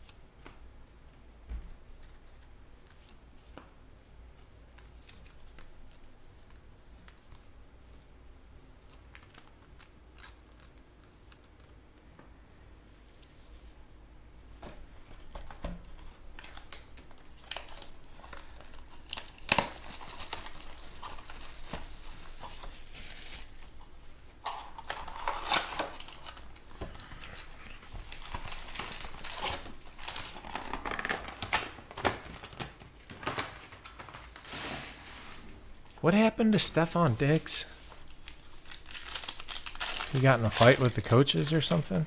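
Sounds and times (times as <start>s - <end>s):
wrapping crinkling and tearing: 4.7s - 7.6s, 8.8s - 11.8s, 15.0s - 35.6s, 36.9s - 42.0s.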